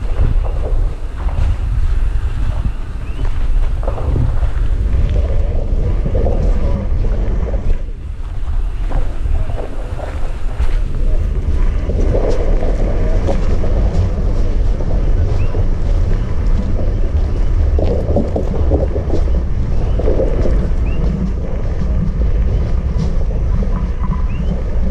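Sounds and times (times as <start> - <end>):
lava fissure roaring: 0.0 - 24.9
wind buffeting microphone: 0.0 - 24.9.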